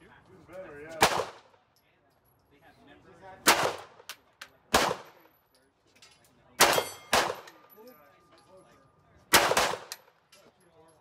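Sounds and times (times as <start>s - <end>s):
pistol shots: 1.0s - 1.6s, 3.4s - 5.2s, 6.6s - 7.6s, 9.3s - 10.2s
steel targets clanging: 5.5s - 8.7s.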